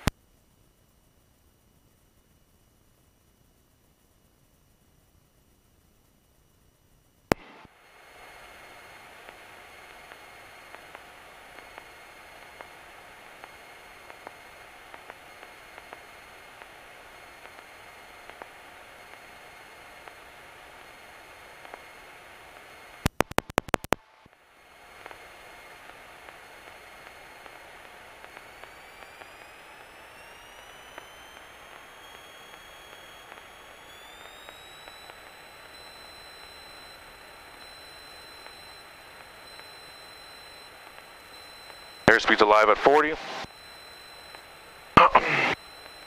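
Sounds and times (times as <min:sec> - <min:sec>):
sharp clicks: 0:23.0 - 0:24.4, 0:27.0 - 0:46.0
small plane engine and propeller: 0:24.3 - 0:44.4.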